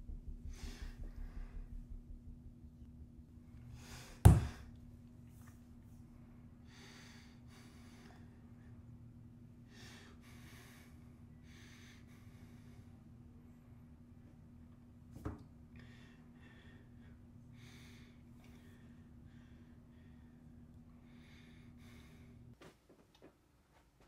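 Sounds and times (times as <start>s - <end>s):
low hum: 0.0s - 22.6s
person breathing heavily: 0.4s - 1.9s, 6.2s - 8.8s, 9.6s - 13.0s, 15.8s - 22.6s.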